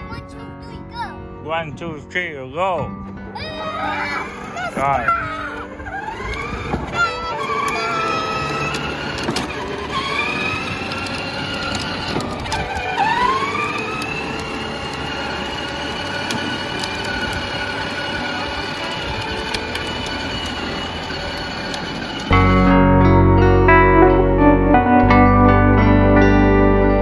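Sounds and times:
small electric motor whine: 5.5s - 22.7s.

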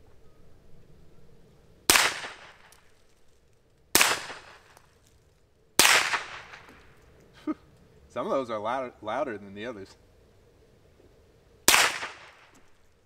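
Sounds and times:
pistol shots: 1.9s - 2.8s, 3.9s - 4.8s, 5.8s - 6.9s, 11.7s - 12.6s.

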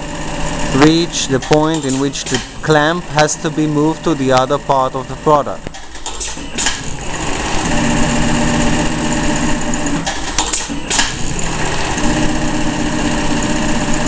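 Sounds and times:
sewing machine stitching: 0.0s - 14.0s
sharp clicks: 0.8s - 3.0s, 5.6s - 6.9s, 9.7s - 11.5s.

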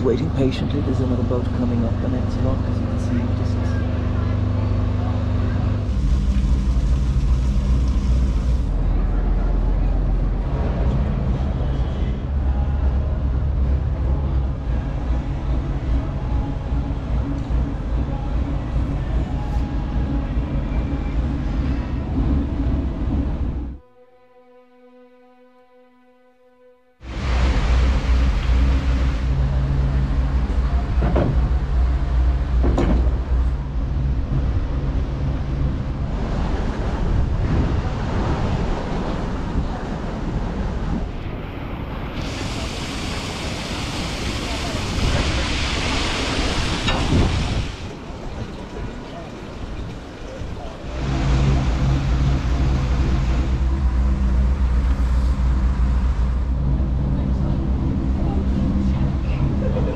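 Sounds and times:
diesel engine running: 0.0s - 23.8s, 27.1s - 38.8s, 50.8s - 59.9s.

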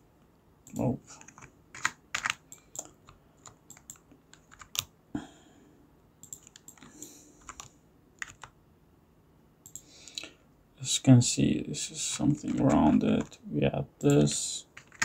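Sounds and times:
keyboard keys clicking: 0.7s - 4.9s, 6.2s - 8.5s, 14.8s - 15.0s.

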